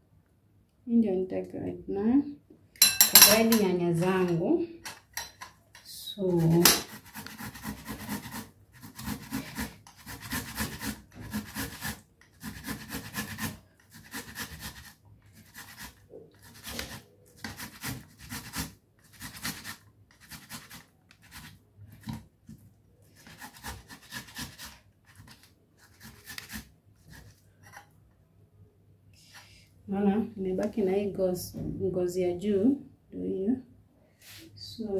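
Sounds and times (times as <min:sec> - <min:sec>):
tomatoes grated on metal grater: 0:06.2 - 0:21.6, 0:23.2 - 0:27.3.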